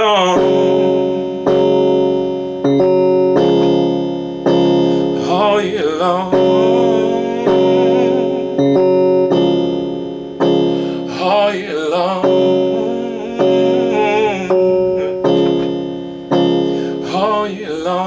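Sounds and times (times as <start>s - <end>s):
man singing: 0.0s - 1.5s, 4.9s - 9.0s, 10.8s - 15.7s, 16.7s - 18.0s
electronic keyboard chords: 0.0s - 18.0s.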